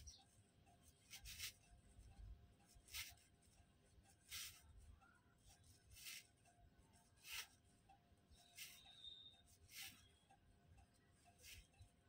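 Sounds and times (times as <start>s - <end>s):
glitter fabric rustling: 0.9s - 7.7s.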